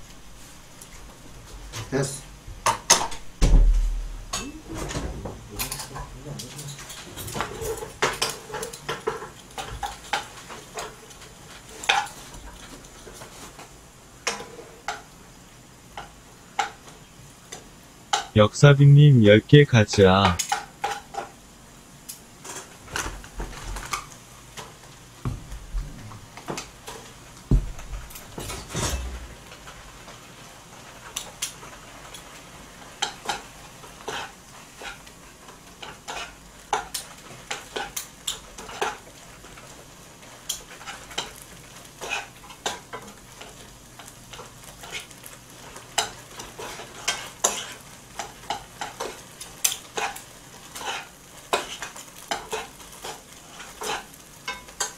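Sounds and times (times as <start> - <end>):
faint sizzle: 0.0 - 54.9
utensils scraping a wok: 5.7 - 15.0, 28.2 - 29.5, 33.0 - 39.7, 40.5 - 54.9
dull thumps: 25.2 - 26.2, 27.5 - 28.1.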